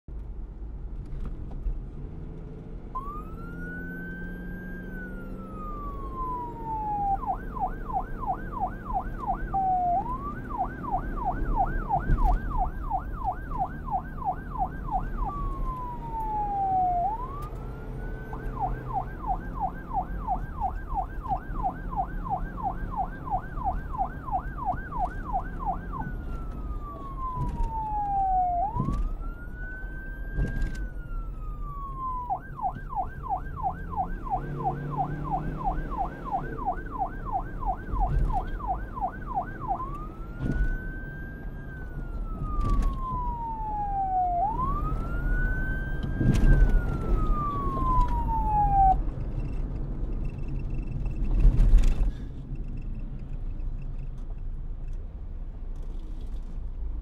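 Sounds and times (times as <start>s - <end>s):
police siren yelp and wail: 2.9s - 50.0s.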